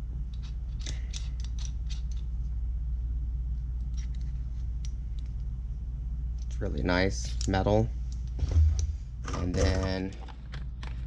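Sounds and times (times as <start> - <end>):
steady low hum: 0.0 - 11.0
metal clamp clicks and rattles: 0.3 - 2.3.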